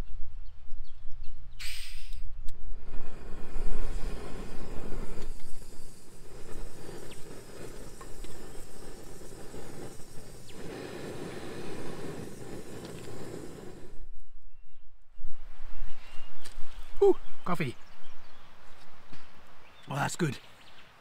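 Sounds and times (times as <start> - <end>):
gas stove hissing: 1.6 - 14.1.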